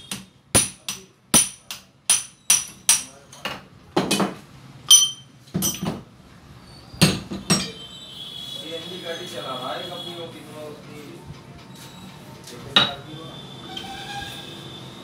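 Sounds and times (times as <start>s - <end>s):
metal clinks and knocks: 1.5s - 6.1s, 7.1s - 7.8s.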